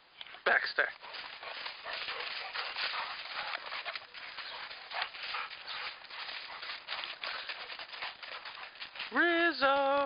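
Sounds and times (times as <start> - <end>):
paws crunching through snow: 0.8 - 10.0.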